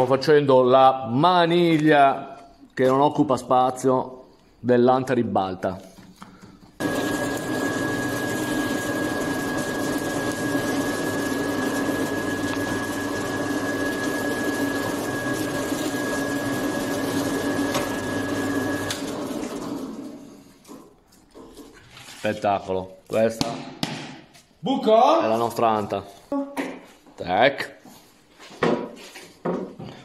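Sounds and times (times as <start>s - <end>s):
motor winding down: 6.8s - 20.4s
drill press boring wood: 6.8s - 20.9s.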